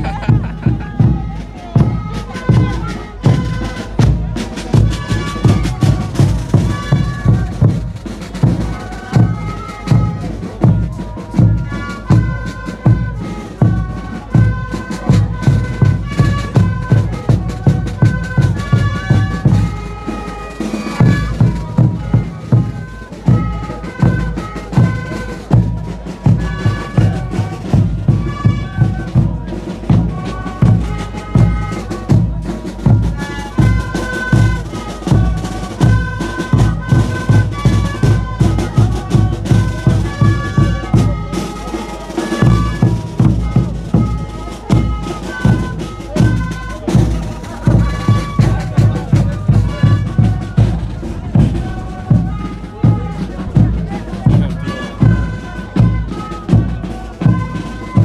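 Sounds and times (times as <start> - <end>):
steady drum beat: 0.0 - 58.0.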